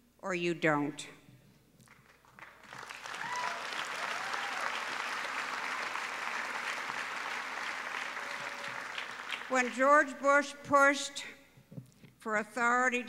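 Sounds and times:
audience applauding: 0:02.0 - 0:09.8.

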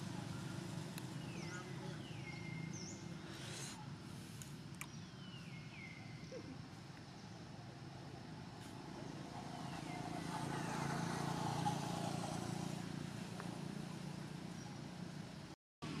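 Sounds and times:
vehicle engine passing by: 0:08.6 - 0:16.0.

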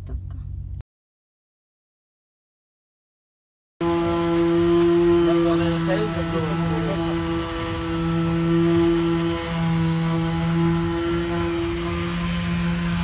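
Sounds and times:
power polisher motor whine: 0:03.8 - 0:13.0.

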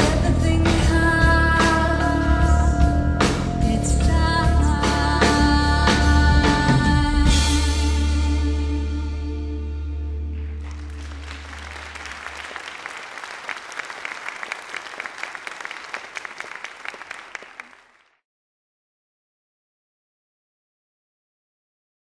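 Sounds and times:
audience applause: 0:10.3 - 0:18.2.

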